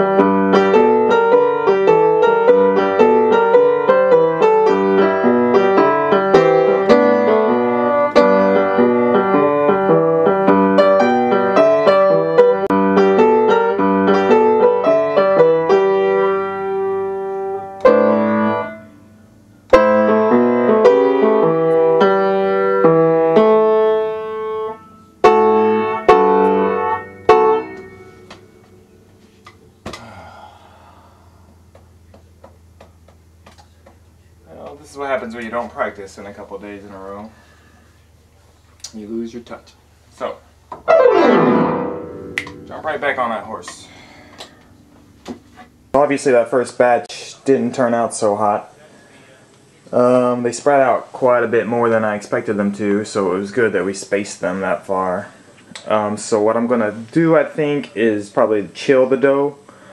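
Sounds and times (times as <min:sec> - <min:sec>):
upright piano playing: 0:00.0 - 0:29.7, 0:40.8 - 0:46.6.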